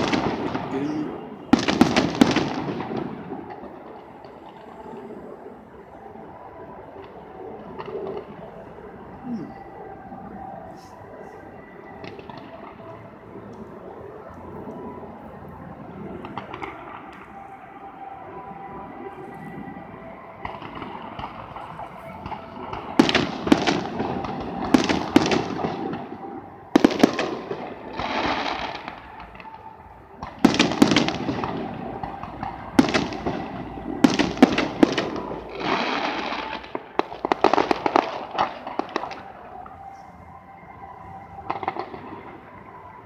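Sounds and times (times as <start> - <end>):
fireworks bangs with crackling: 0.0 - 4.7, 20.4 - 39.8, 41.1 - 42.7.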